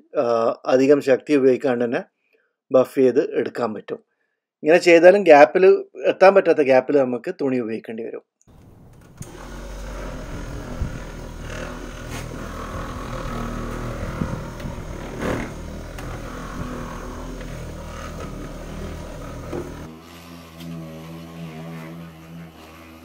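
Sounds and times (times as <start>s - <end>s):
electric car polisher running: 8.5s - 23.0s.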